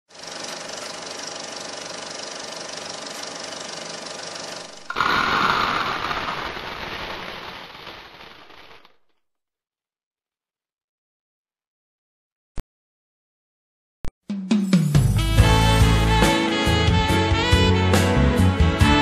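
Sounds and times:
film projector clattering: 0.1 - 8.9
popcorn popping: 4.7 - 8.9.

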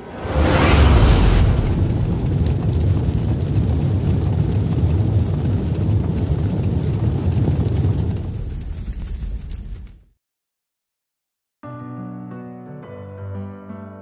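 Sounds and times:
rushing burst: 0.0 - 5.8
deep rumble: 0.0 - 10.0.

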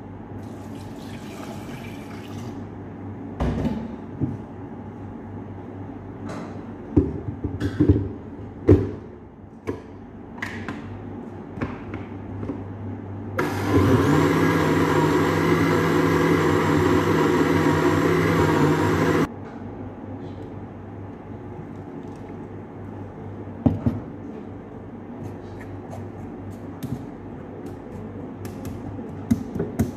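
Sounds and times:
electric blender running: 13.4 - 19.3.

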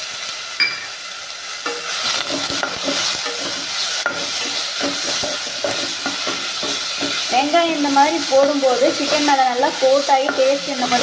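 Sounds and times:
paste sizzling in hot oil: 0.0 - 11.0
spatula scraping pan bottom: 1.6 - 8.0.

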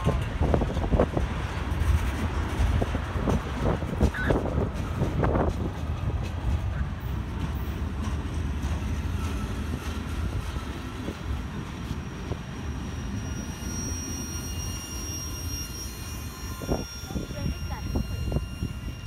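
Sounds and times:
freight train wheels rumbling: 0.0 - 19.0
high wheel squeal: 9.0 - 19.0.

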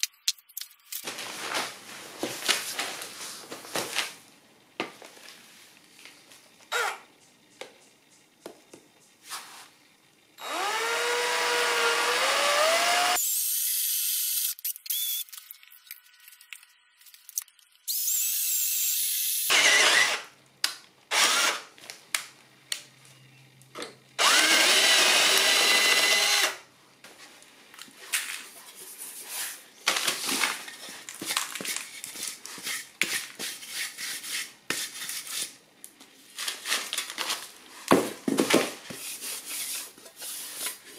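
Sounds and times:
cordless drill boring through steel: 10.4 - 15.2, 17.9 - 20.3, 21.1 - 21.6, 24.2 - 26.6.

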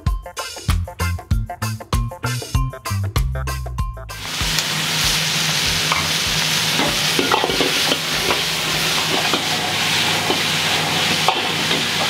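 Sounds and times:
food sizzling in hot oil: 4.2 - 12.0
metal ladle scraping wok: 4.2 - 12.0.

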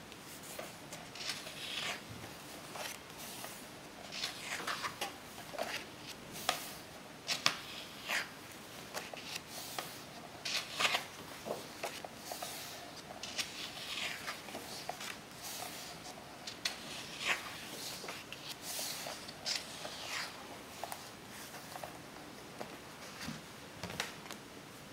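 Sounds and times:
book pages turning: 0.1 - 22.0.

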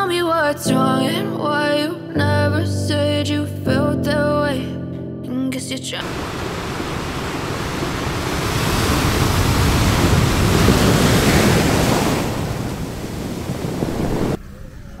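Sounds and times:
surf washing up the beach: 6.0 - 14.4.

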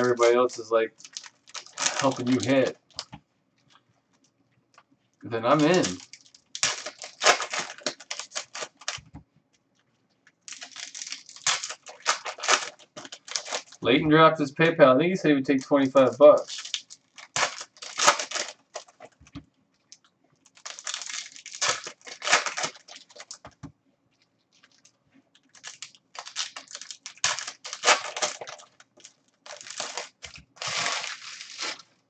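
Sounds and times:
card packs torn open: 0.0 - 3.1, 5.4 - 9.0, 10.5 - 13.8, 15.5 - 19.2, 20.4 - 23.4, 25.5 - 31.9
wrappers crinkling: 0.0 - 4.3, 5.3 - 9.1, 10.2 - 13.9, 15.5 - 23.6, 24.2 - 32.0.

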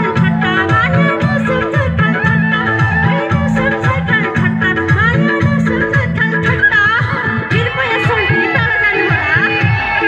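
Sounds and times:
backing music with a beat: 0.0 - 10.0
woman singing into a microphone: 0.0 - 10.0.

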